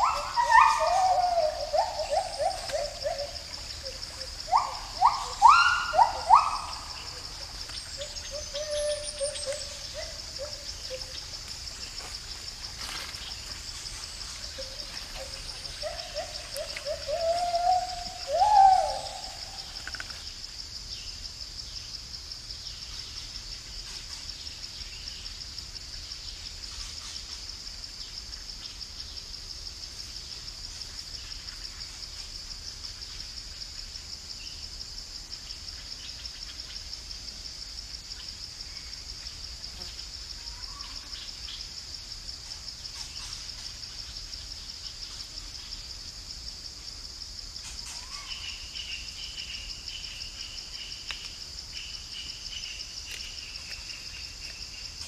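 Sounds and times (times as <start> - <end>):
gibbon calling: 0.0 - 3.3, 4.5 - 6.8
high insect drone: 0.0 - 55.0.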